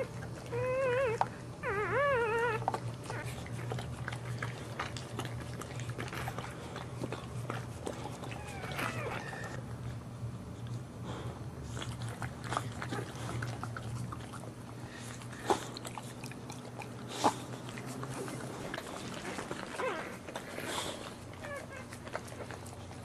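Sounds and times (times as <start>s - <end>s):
dog licking and chewing wetly: 0.0s - 9.6s, 11.6s - 23.0s.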